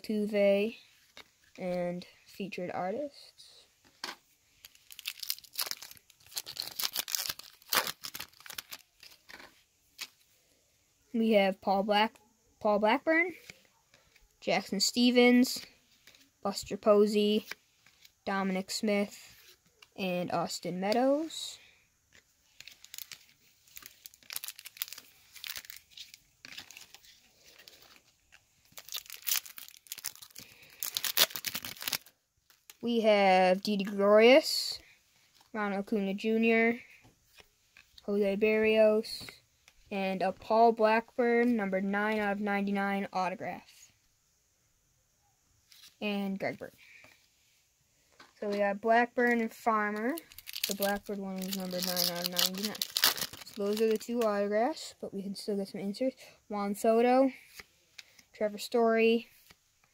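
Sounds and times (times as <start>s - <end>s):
wrapper tearing and crinkling: 4.6s - 9.3s, 22.5s - 32.8s, 50.0s - 54.1s.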